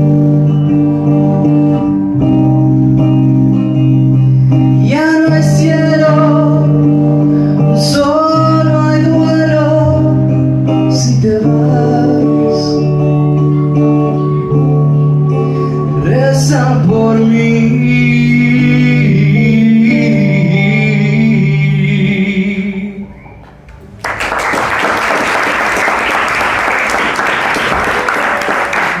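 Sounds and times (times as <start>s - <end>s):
instrumental backing music: 0.0s - 24.0s
man singing amplified: 4.5s - 23.2s
applause: 23.9s - 29.0s.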